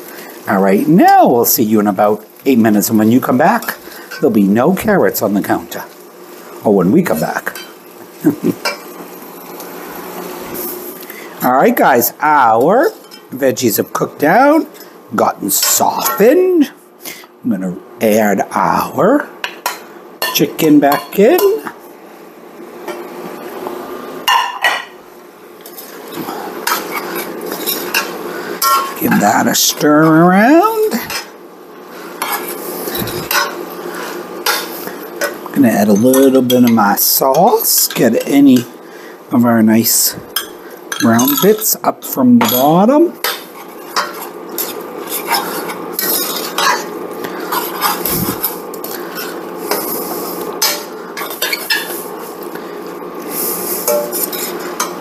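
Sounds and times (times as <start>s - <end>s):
metal utensil scraping a pan: 25.6s - 29.0s, 32.1s - 38.5s, 42.4s - 52.0s, 53.3s - 55.0s.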